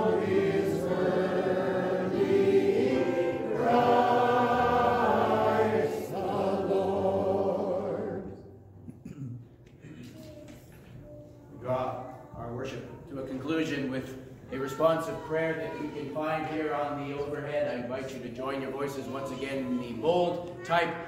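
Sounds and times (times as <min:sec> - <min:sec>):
congregation singing a hymn: 0:00.0 - 0:08.6.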